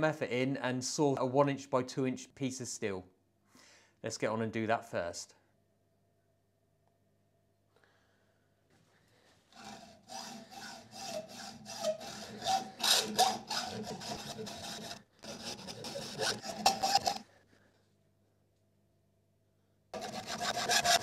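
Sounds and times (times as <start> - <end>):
hacksaw cutting steel: 9.6 - 17.3, 20.0 - 21.0.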